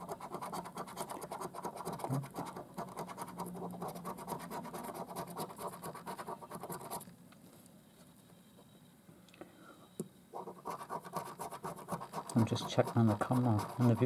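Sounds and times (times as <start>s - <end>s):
coin scraping scratch card: 10.4s - 14.0s.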